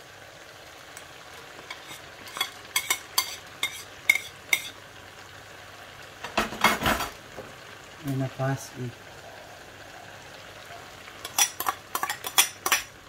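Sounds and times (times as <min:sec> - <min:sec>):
vegetables sizzling in a pan: 0:00.0 - 0:13.0
spatula scraping a pan: 0:01.4 - 0:04.8, 0:11.2 - 0:12.9.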